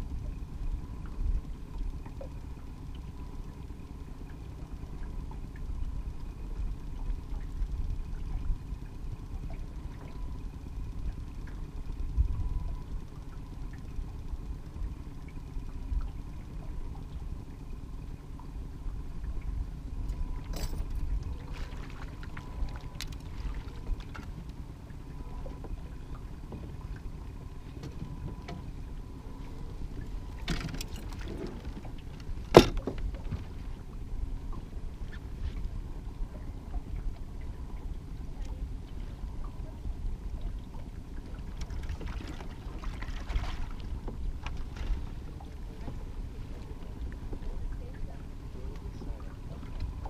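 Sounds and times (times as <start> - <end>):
faint steady whine: 0.0 - 50.0
outboard motor rumbling: 0.0 - 50.0
sharp knock on boat: 32.5 - 33.4.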